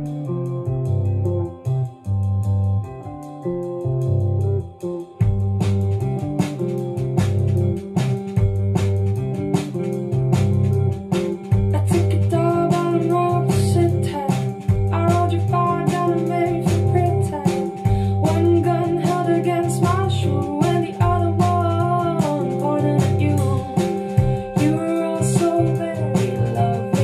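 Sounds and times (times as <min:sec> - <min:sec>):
bass line: 0:00.0 - 0:27.0
plucked guitar: 0:00.0 - 0:27.0
person singing: 0:11.7 - 0:27.0
song over loudspeakers: 0:11.7 - 0:27.0.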